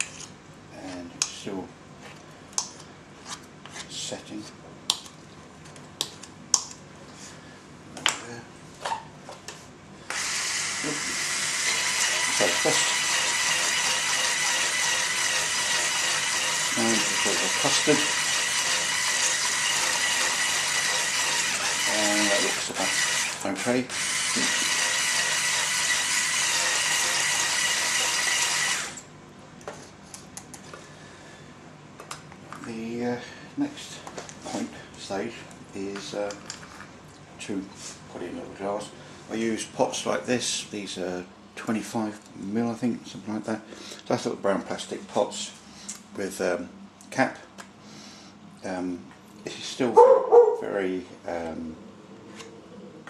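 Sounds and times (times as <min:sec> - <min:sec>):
electric hand mixer whisking: 0:10.1 - 0:29.0.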